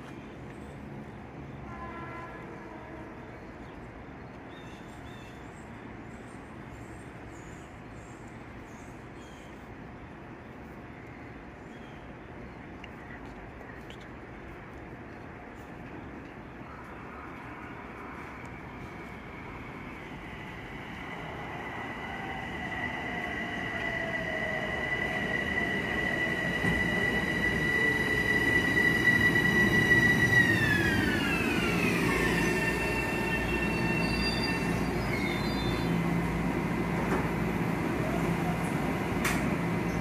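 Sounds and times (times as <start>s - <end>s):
train wheels on rail: 14.5s - 40.0s
electric train whine: 16.9s - 40.0s.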